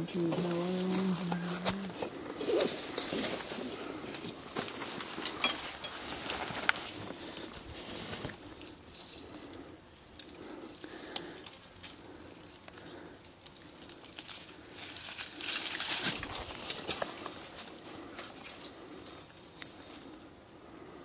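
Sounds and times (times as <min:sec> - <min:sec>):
brush and dry leaves rustling: 0:00.0 - 0:21.0.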